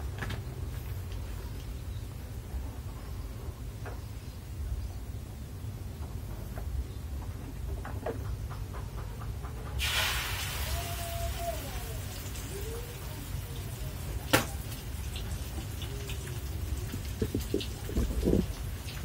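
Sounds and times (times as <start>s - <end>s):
frying sizzle in a wok: 9.8s - 19.0s.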